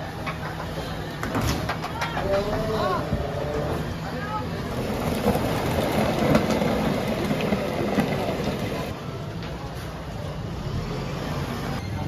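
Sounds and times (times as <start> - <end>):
heavy machinery diesel engine: 1.9 - 9.2.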